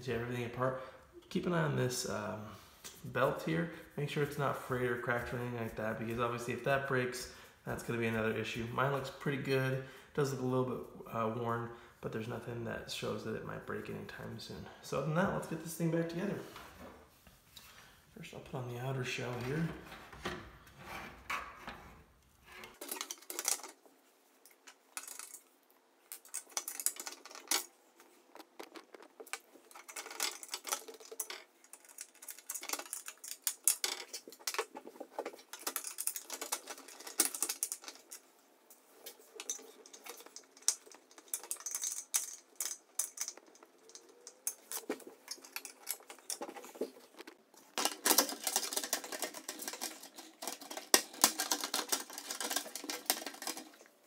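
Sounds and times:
metal tools clattering: 0:21.3 - 0:23.8, 0:24.4 - 0:25.5, 0:26.1 - 0:38.3, 0:39.0 - 0:54.0
plastic parts clicking and knocking: 0:22.6 - 0:54.0.

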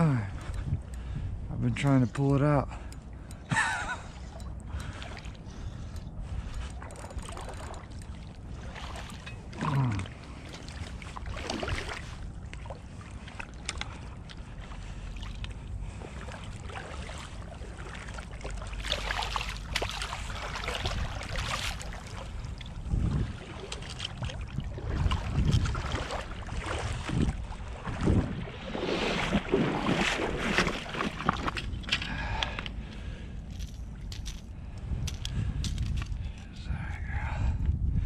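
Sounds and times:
wind on microphone: 0:00.0 - 0:01.8, 0:20.0 - 0:32.5, 0:33.9 - 0:38.0
river water lapping: 0:00.0 - 0:36.4.

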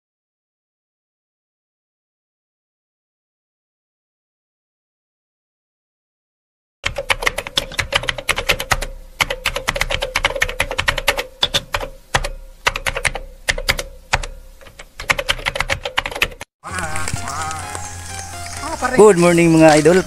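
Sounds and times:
rapid keyboard typing clicks: 0:06.8 - 0:17.6
faint steady hum: 0:07.1 - 0:15.6.

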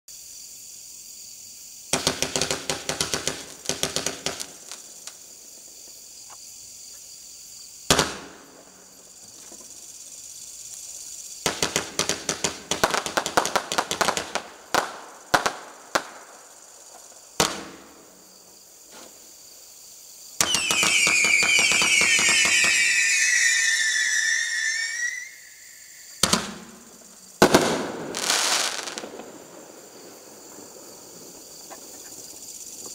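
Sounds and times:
firework whistling: 0:01.9 - 0:05.7, 0:11.2 - 0:16.4, 0:20.4 - 0:32.0
firework crackling: 0:01.9 - 0:05.8, 0:10.8 - 0:16.7, 0:20.4 - 0:32.2
loud firework bang: 0:26.2 - 0:29.7.

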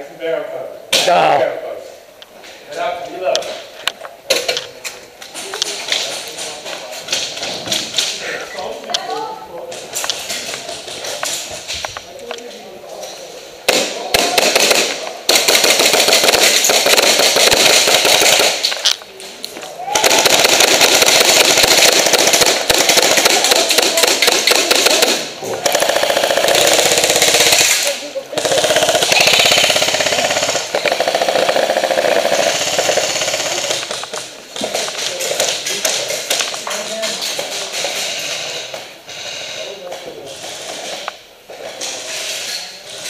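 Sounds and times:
rapid airsoft gunfire: 0:13.7 - 0:18.8, 0:20.0 - 0:34.0.

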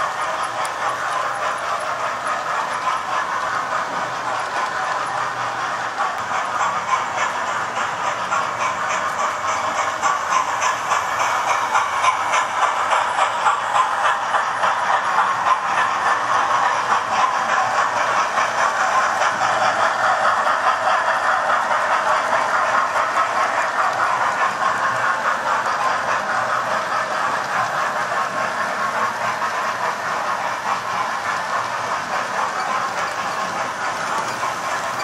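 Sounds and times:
model train motors whirring: 0:00.0 - 0:35.0.

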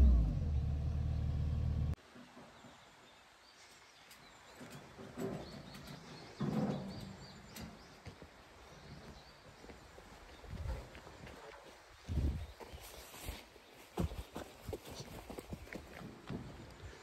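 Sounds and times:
diesel engine running: 0:00.0 - 0:02.0.

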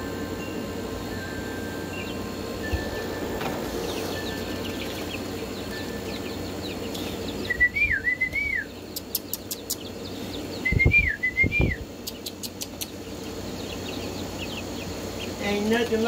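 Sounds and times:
person whistling tune: 0:07.5 - 0:08.7, 0:10.7 - 0:11.8.

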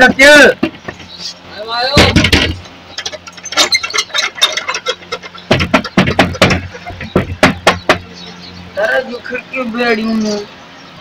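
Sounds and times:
knocking on wooden door: 0:01.9 - 0:02.6, 0:05.4 - 0:08.1.

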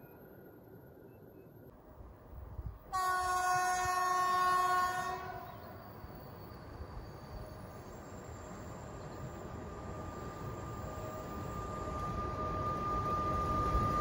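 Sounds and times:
train horn blast: 0:02.9 - 0:05.6.

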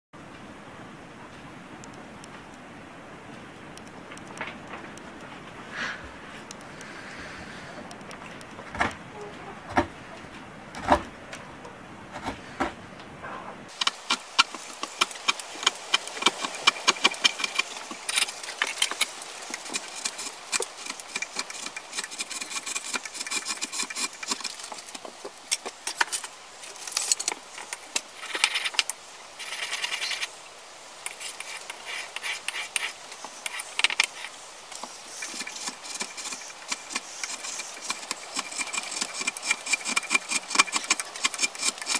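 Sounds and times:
blade scraping wood: 0:13.7 - 0:30.4, 0:31.1 - 0:41.9.

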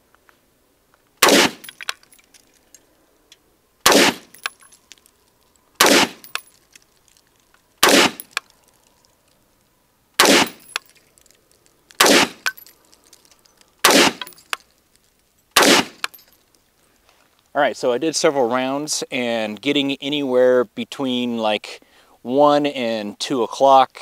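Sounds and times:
rifle shots: 0:01.2 - 0:01.8, 0:03.8 - 0:04.4, 0:05.8 - 0:06.4, 0:07.8 - 0:08.4, 0:10.2 - 0:10.8, 0:12.0 - 0:12.6, 0:13.8 - 0:14.4, 0:15.6 - 0:16.1.

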